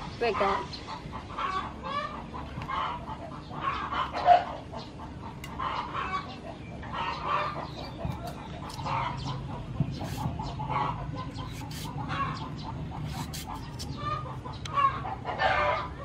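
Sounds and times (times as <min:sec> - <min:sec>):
chickens clucking: 0:00.0 - 0:16.0
knife scraping gourd skin: 0:07.8 - 0:09.2, 0:10.0 - 0:10.4, 0:11.4 - 0:12.3, 0:12.9 - 0:14.3.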